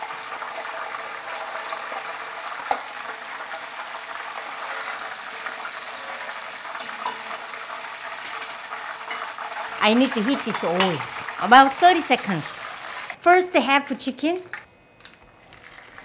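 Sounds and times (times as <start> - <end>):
hot oil sizzling in a pot: 0.0 - 13.2, 15.5 - 16.0.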